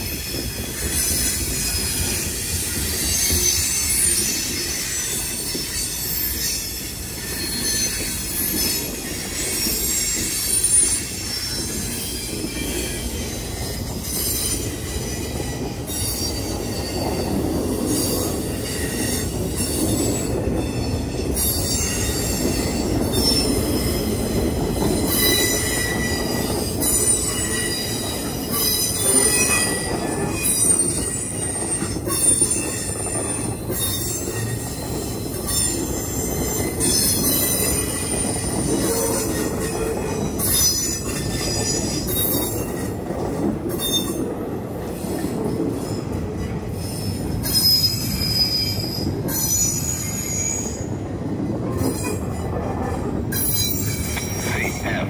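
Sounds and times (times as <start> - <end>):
steel wheels rumbling on rail: 0.0 - 55.0
high-pitched wheel squeal: 0.3 - 42.7, 46.9 - 51.0.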